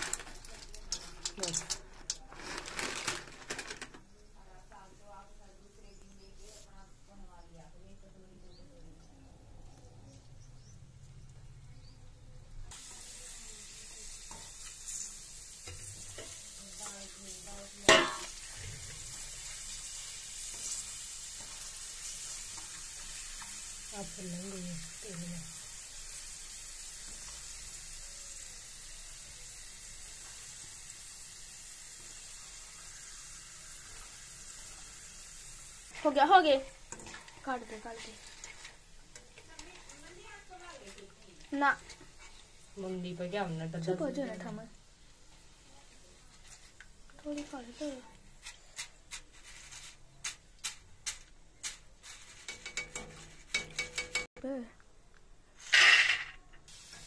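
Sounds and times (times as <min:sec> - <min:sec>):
hot oil sizzling: 0:00.0 - 0:02.7, 0:12.4 - 0:54.6, 0:55.6 - 0:57.0
skimmer scraping a steel wok: 0:12.8 - 0:24.2, 0:35.8 - 0:44.5, 0:46.3 - 0:54.2
metallic clatter onto a plate: 0:17.9 - 0:18.3.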